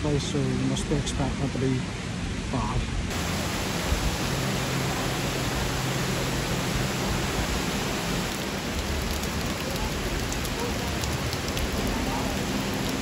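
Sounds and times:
heavy rain on wet paving: 0:03.1 - 0:13.0.

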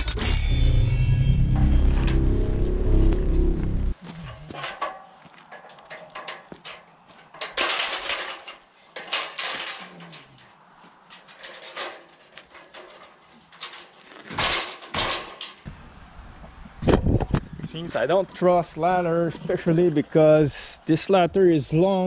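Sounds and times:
aluminium ladder clattering: 0:04.1 - 0:15.7.

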